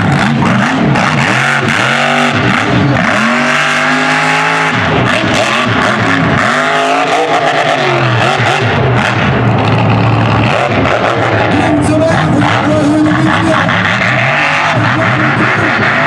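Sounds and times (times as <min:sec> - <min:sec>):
truck engine revving: 0:00.0 - 0:16.0.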